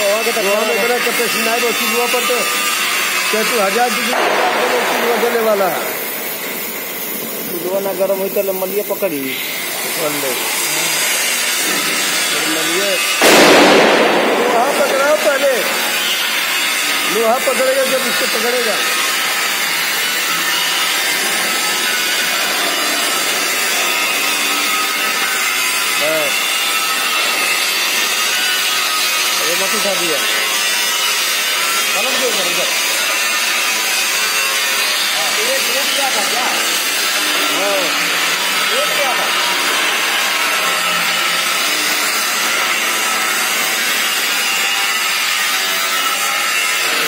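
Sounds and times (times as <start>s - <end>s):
welding torch flame hissing: 0.0s - 47.0s.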